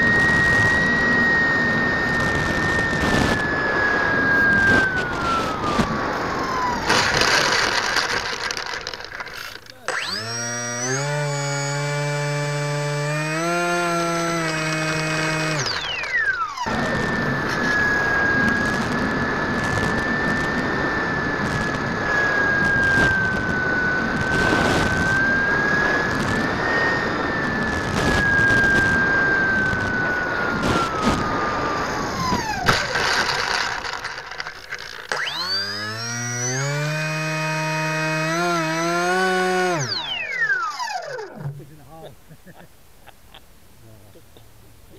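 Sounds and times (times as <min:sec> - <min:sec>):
model aircraft engine buzzing: 0:00.0 - 0:41.7
high whine: 0:00.0 - 0:44.9.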